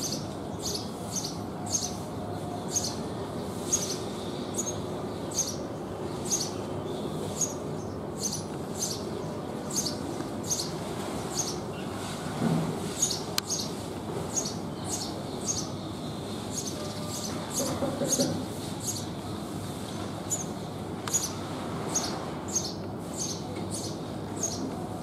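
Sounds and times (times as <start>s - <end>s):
sparrow chirping: 0.0s - 12.1s, 12.9s - 19.1s, 20.0s - 24.6s.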